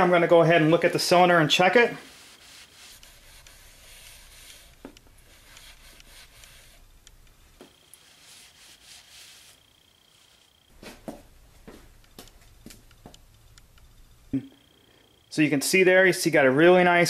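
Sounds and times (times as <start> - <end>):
cloth rag rubbing metal: 0.0 - 6.9, 7.8 - 10.5.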